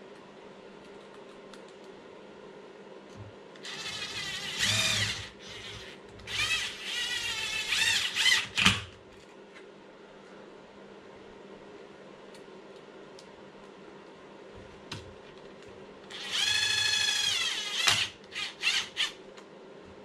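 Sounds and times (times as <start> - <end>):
electric screwdriver motor whine: 3.6 - 8.5, 16.1 - 19.1.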